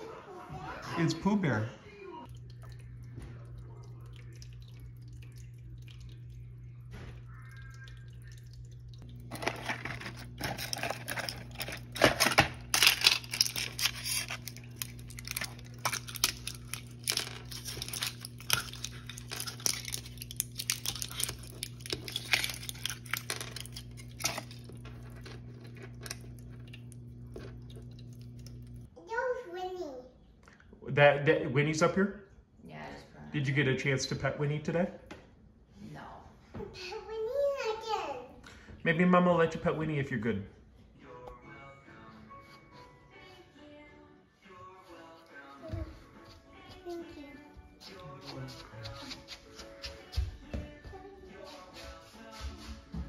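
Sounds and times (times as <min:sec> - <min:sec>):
steady low hum: 0:02.1 - 0:28.9
packaging crinkling: 0:09.2 - 0:28.8.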